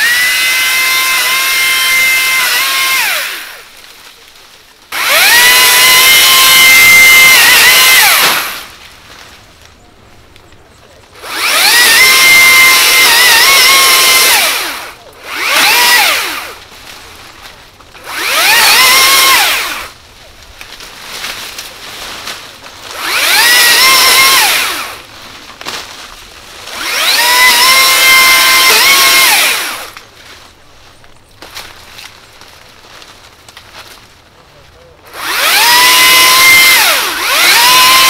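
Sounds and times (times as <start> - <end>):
pole saw motor whining: 0.0 - 3.7, 4.9 - 8.7, 11.2 - 16.6, 18.0 - 20.0, 22.9 - 25.0, 26.7 - 30.0, 35.0 - 38.0.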